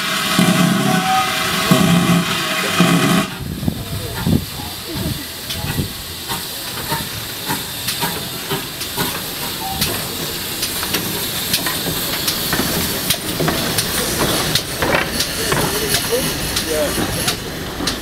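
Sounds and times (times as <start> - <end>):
steam hissing: 0.0 - 18.0
locomotive running gear clanking: 2.8 - 18.0.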